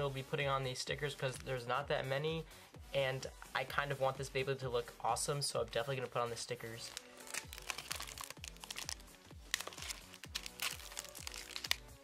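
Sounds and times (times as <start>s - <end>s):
background music with low beat: 0.0s - 12.0s
plastic bags crinkling: 6.7s - 12.0s.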